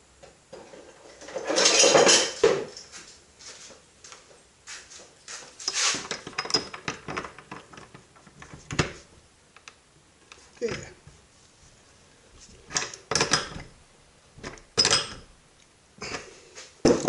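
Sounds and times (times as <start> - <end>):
metal tools clattering: 1.2 - 3.0, 14.8 - 15.2.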